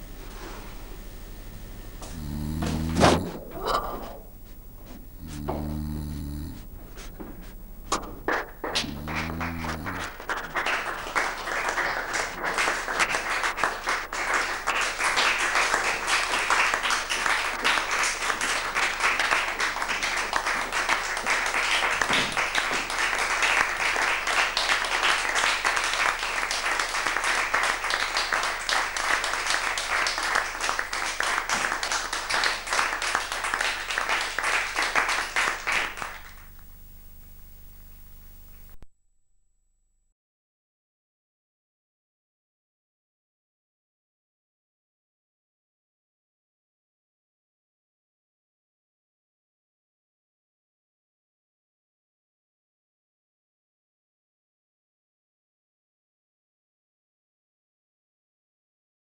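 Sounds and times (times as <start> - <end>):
audience applauding: 8.0 - 36.5.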